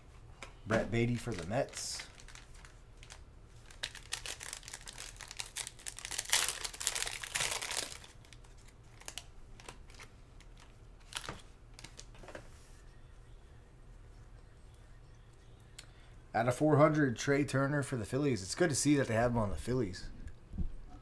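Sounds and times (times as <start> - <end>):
foil wrapper crinkling: 1.0 - 12.2.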